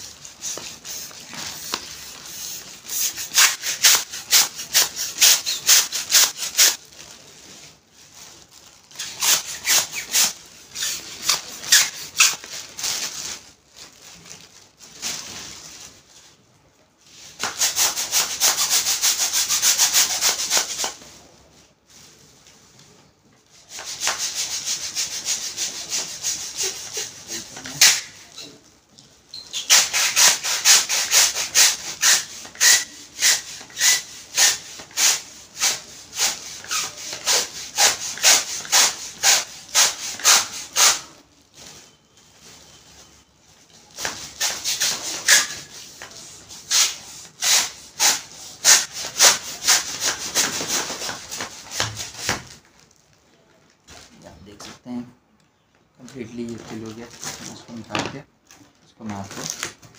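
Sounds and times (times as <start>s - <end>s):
hand pump strokes: 29.5s - 41.0s.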